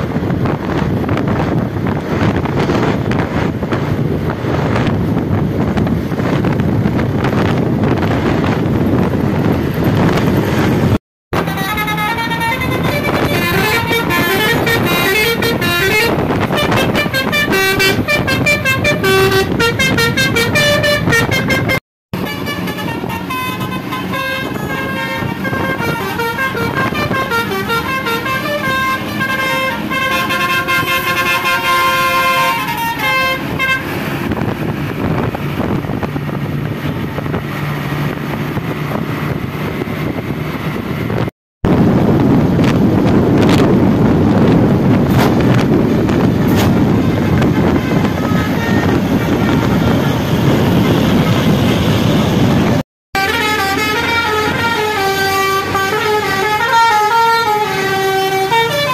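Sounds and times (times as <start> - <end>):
vehicle and road noise: 0.0 - 58.9
multi-tone bus horn melodies: 11.3 - 37.0, 44.4 - 58.9.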